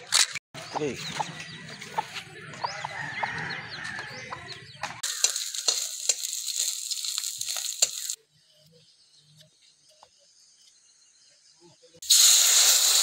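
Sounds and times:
fish sizzling in hot oil: 5.0 - 8.2, 12.0 - 13.0.

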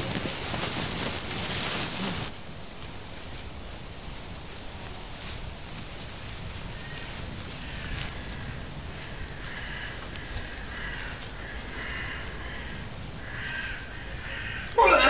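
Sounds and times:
rushing outdoor noise: 0.0 - 15.0.

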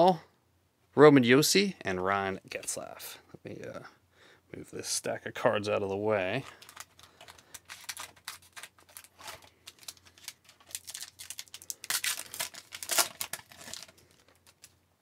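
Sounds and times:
cards being handled: 6.4 - 14.8
foil wrapper crinkling and tearing: 6.4 - 14.8.

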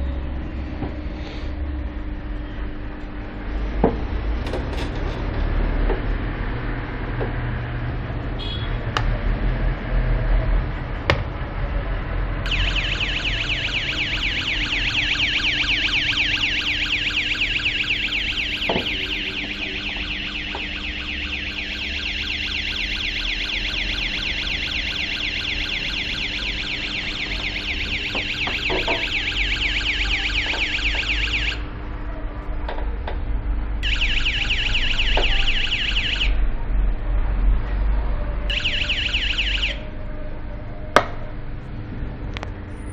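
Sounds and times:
warbling electronic alarm siren: 12.4 - 31.8, 33.8 - 36.5, 38.5 - 40.8.

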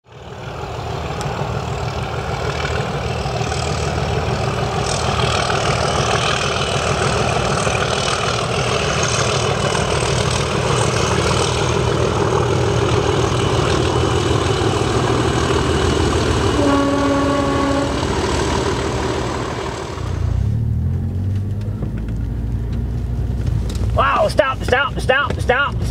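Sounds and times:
diesel locomotive engine running: 0.0 - 25.9
locomotive horn: 16.4 - 18.3
car driving hum: 18.8 - 25.9.

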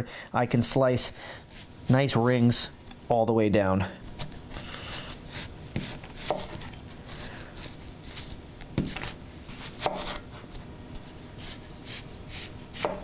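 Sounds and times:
knife slicing onion on wooden board: 4.1 - 13.0.

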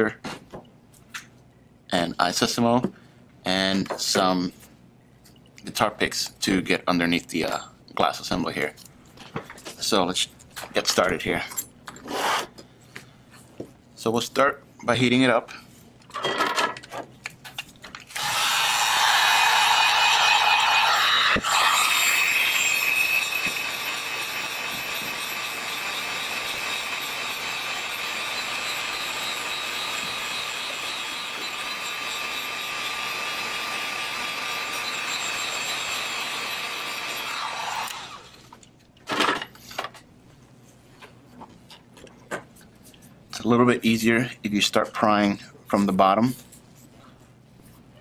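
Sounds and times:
heat gun blowing: 18.1 - 38.4.

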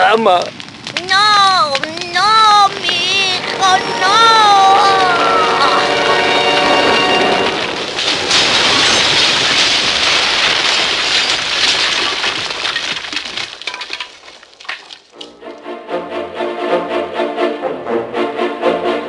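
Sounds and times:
fire crackling: 0.0 - 15.6
breaking and crashing noises: 0.3 - 15.4
brass music: 3.3 - 7.8, 15.2 - 19.0.

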